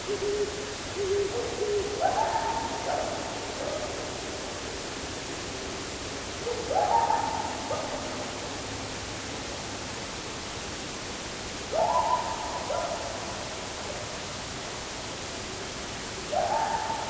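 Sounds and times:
steady background hiss: 0.0s - 17.0s
owl hooting: 0.1s - 3.2s, 16.3s - 17.0s.

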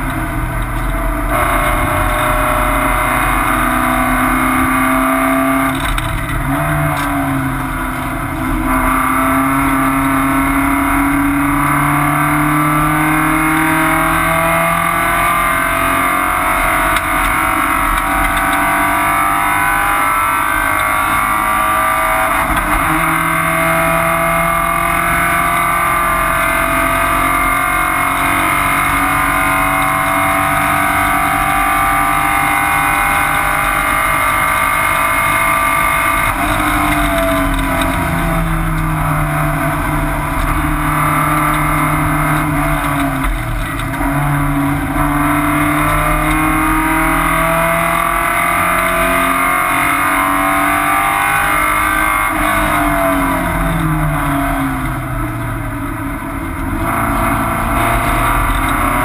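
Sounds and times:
race car engine revving: 0.0s - 59.0s.

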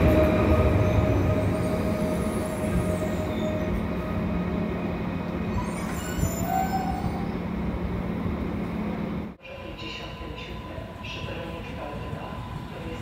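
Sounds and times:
train whine: 0.0s - 13.0s
faint squeal: 5.4s - 7.4s.

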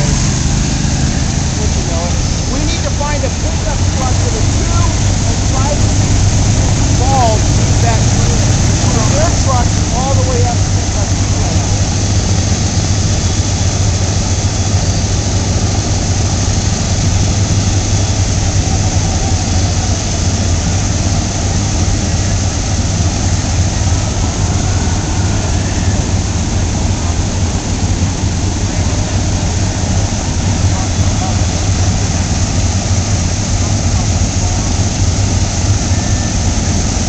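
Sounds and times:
aircraft engines droning: 0.0s - 37.0s.

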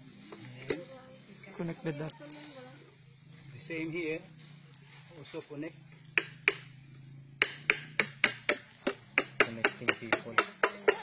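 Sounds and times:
blade chopping bamboo: 7.4s - 11.0s.

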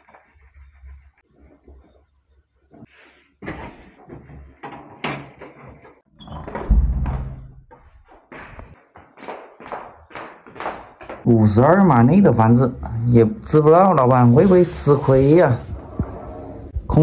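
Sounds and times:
door shutting with heavy thud: 6.4s - 7.6s.

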